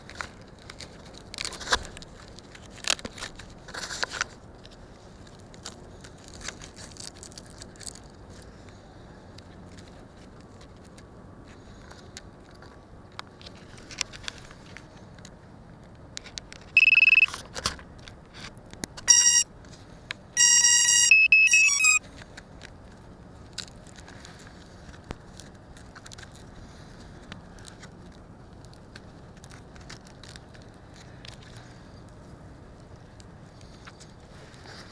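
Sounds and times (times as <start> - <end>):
electronic beeps: 16.8 - 17.3, 19.1 - 19.4, 20.4 - 22.0.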